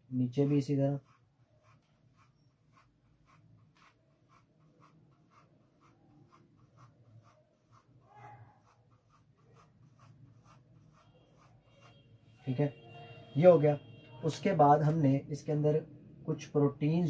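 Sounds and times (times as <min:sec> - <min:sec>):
felt-tip marker scratching on paper: 0:00.3 - 0:12.1.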